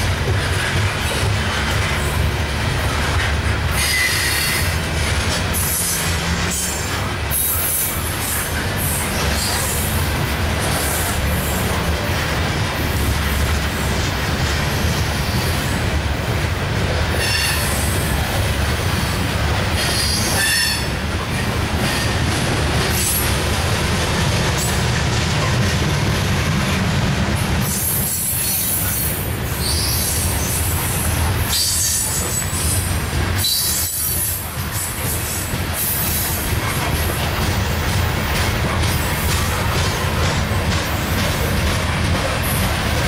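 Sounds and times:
steel wheels rumbling on rail: 0.0s - 43.0s
high-pitched wheel squeal: 3.8s - 4.8s, 29.6s - 30.5s.

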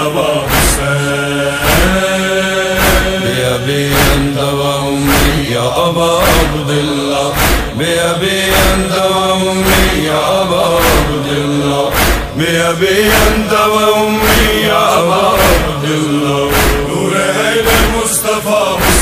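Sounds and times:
men chanting a lament: 0.0s - 19.0s
heavy steady beat: 0.5s - 1.0s, 1.6s - 4.4s, 5.0s - 5.5s, 6.2s - 9.0s, 9.6s - 11.2s, 11.9s - 12.5s, 13.1s - 13.6s, 14.2s - 15.8s, 16.5s - 17.0s, 17.7s - 18.2s, 18.8s - 19.0s.

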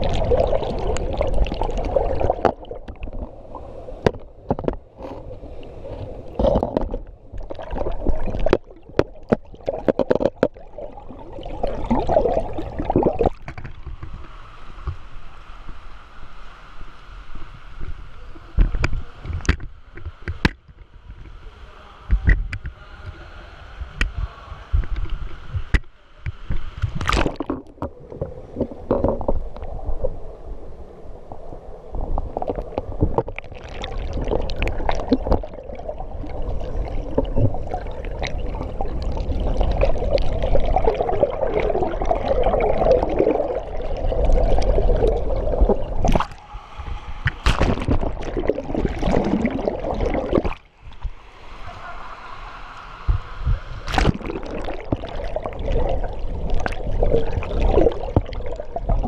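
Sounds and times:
muffled underwater splashing: 0.0s - 15.1s, 31.8s - 59.0s.

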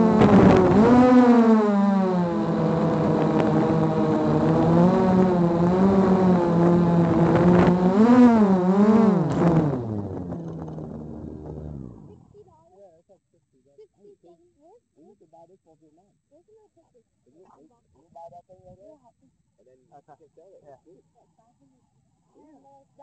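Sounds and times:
drone propellers whining: 0.0s - 12.2s.

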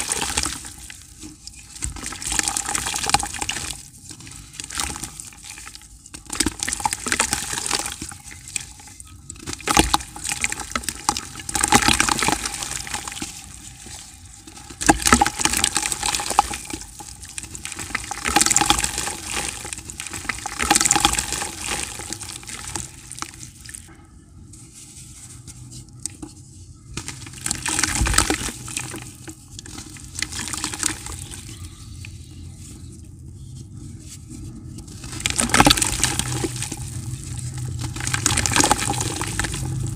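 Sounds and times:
pieces splashing into water: 9.4s - 13.5s, 14.5s - 23.6s, 27.0s - 31.5s, 35.0s - 39.9s.

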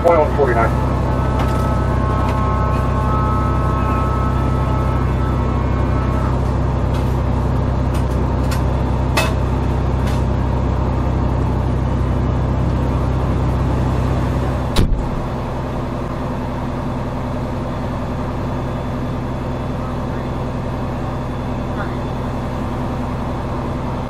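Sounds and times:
engine droning inside cab: 0.0s - 24.0s
loud knock: 14.8s - 15.1s.

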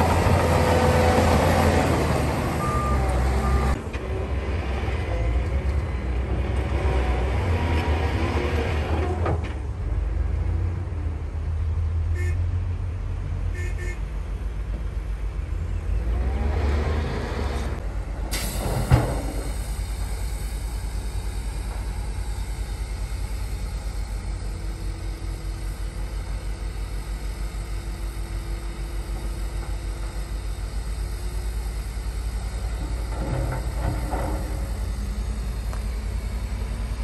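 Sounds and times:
heavy diesel engines rumbling: 0.0s - 37.0s
reversing beeps: 2.6s - 3.8s.

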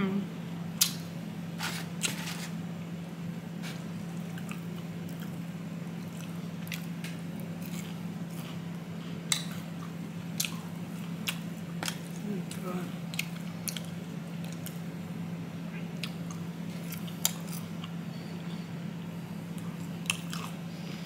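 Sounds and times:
steady low hum: 0.0s - 21.0s
person chewing crisp fried chicken: 3.6s - 14.9s, 15.8s - 18.0s, 19.6s - 20.7s.

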